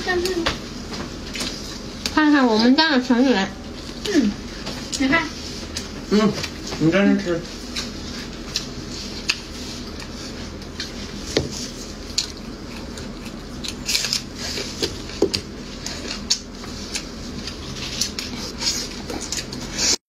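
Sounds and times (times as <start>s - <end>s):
wet chewing and lip smacking: 7.8s - 20.0s.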